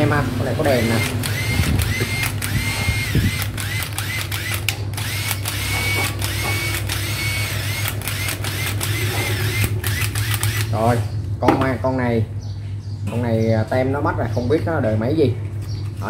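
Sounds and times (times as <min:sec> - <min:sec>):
drill motor whining: 0:00.6 - 0:10.9
sharp clicks: 0:00.9 - 0:10.8.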